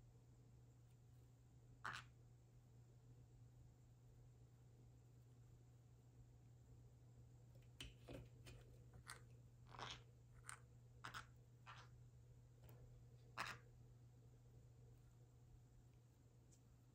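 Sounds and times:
parrot beak crunching: 9.0s - 11.9s.

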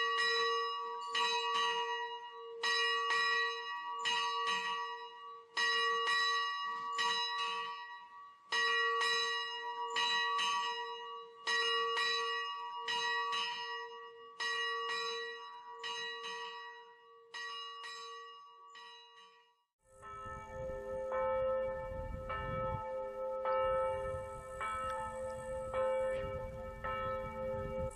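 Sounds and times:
church bells ringing: 0.0s - 27.9s.

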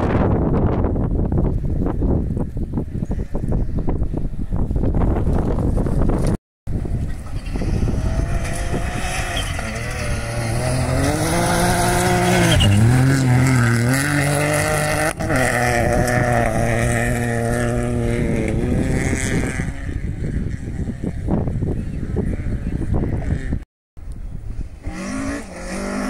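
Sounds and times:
rally car engine at speed: 6.2s - 21.6s, 24.8s - 26.0s.

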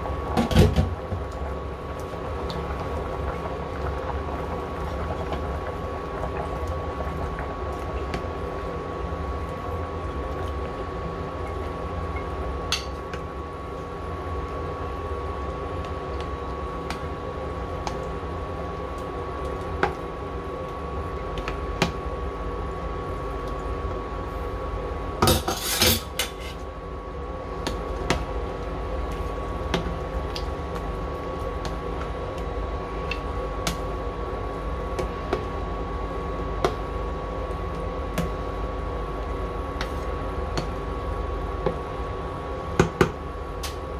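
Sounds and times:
induction cooktop hum and whine: 0.0s - 43.9s.

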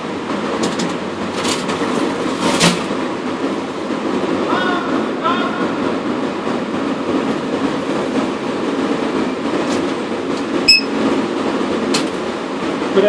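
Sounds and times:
short electronic beep: 10.7s - 10.9s.

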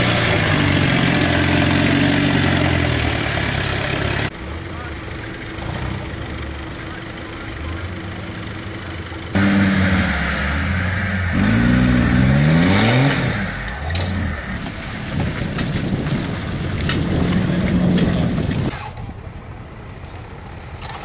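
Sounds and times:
car engine revving: 0.0s - 4.3s, 5.4s - 15.8s.

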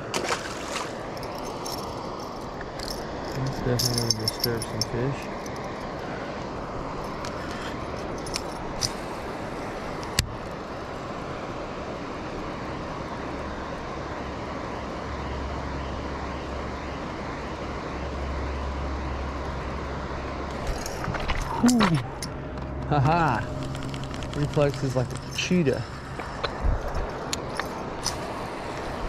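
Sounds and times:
steady rushing noise: 20.2s - 29.0s.

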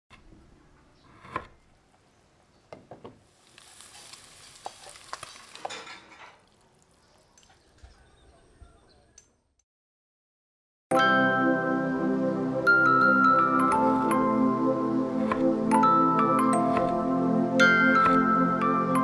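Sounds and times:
rice pouring into sizzling wok: 3.3s - 6.6s
knife chopping on wooden board: 15.2s - 15.5s, 16.6s - 17.0s, 17.9s - 18.3s.

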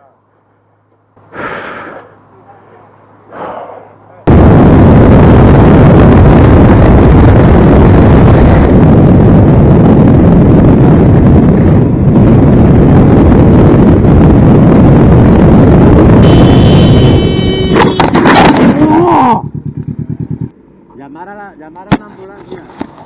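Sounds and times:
road rumble: 0.0s - 23.0s
wind buffeting the microphone: 4.3s - 17.7s
motorcycle engine: 9.4s - 20.5s.

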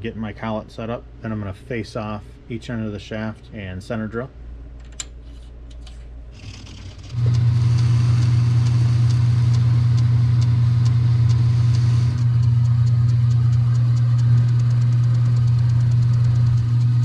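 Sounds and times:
lathe motor hum: 6.4s - 17.0s
light regular ticking: 7.0s - 17.0s.

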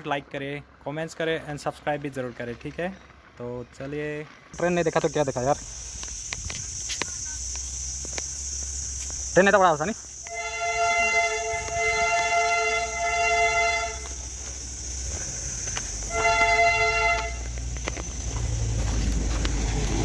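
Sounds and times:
train horn: 10.3s - 14.3s, 16.1s - 17.5s.

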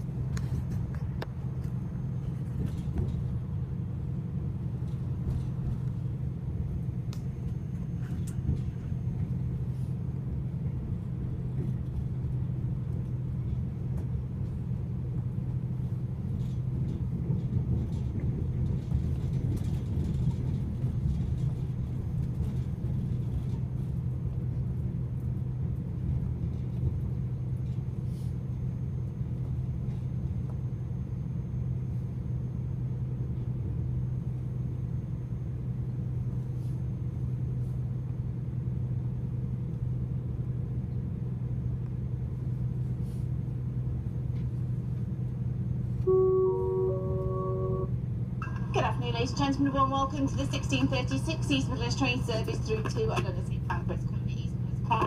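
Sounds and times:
train carriage rumble and hum: 0.0s - 55.0s
public address chime: 46.1s - 55.0s.

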